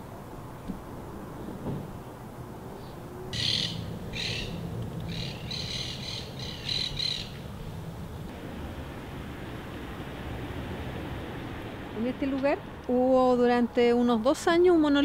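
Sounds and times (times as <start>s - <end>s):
bird giving harsh calls: 3.3s - 7.4s.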